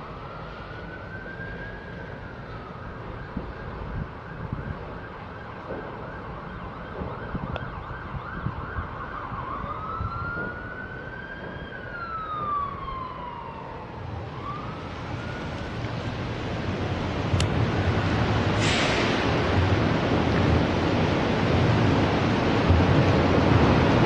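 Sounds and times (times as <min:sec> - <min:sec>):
emergency vehicle siren: 0:00.0 - 0:24.0.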